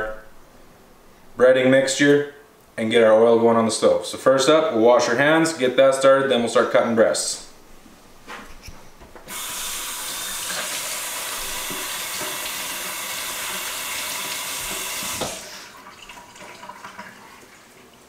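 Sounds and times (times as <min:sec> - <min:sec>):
faucet running into metal sink: 0:09.3 - 0:17.7.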